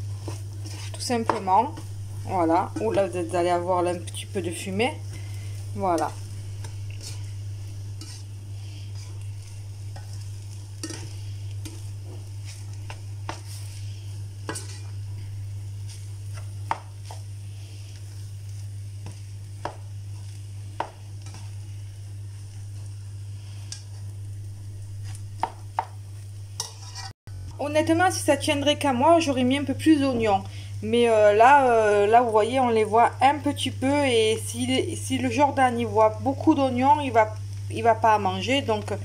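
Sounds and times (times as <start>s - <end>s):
spatula scraping frying pan: 0.0s - 1.9s, 5.0s - 15.0s, 15.8s - 21.6s, 26.6s - 27.2s
light sizzle: 0.0s - 39.0s
steady low hum: 0.0s - 39.0s
spatula tapping pan: 16.3s - 17.2s, 19.0s - 21.6s.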